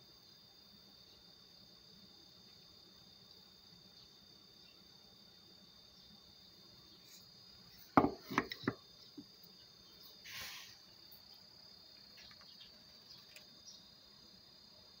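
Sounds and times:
chisel knocking on wood: 8.0 - 8.8
short hiss: 10.2 - 10.9.

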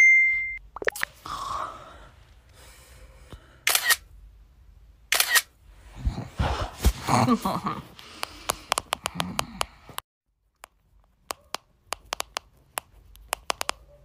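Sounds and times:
phone camera shutter: 3.7 - 4.0, 5.1 - 5.5.

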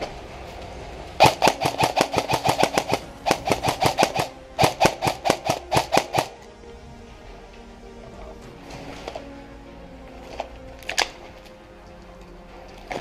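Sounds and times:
airsoft rifle rapid fire: 1.2 - 6.4.

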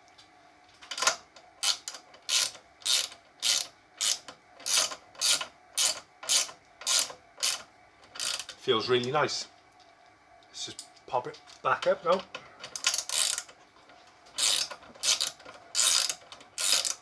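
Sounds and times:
ratchet pawl clicking: 1.0 - 7.6, 8.2 - 8.6, 12.7 - 13.6, 14.4 - 17.0.

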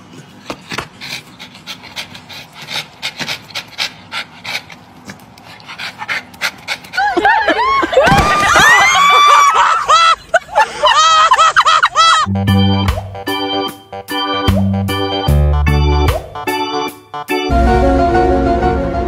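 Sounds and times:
dog panting: 0.0 - 7.4.

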